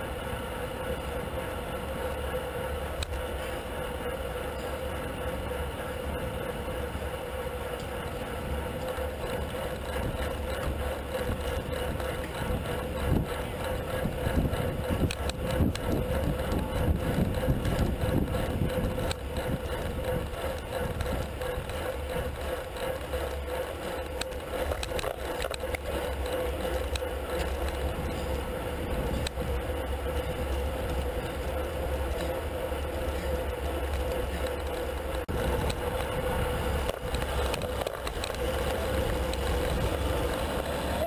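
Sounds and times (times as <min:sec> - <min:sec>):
bike rattling: 0:00.0 - 0:41.0
steady hum: 0:00.0 - 0:41.0
wind and tyres rumbling: 0:00.0 - 0:41.0.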